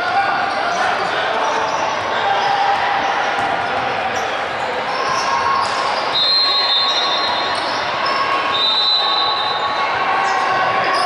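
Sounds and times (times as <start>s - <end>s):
hubbub of players and spectators: 0.0s - 11.0s
basketball bouncing on court: 3.3s - 3.9s.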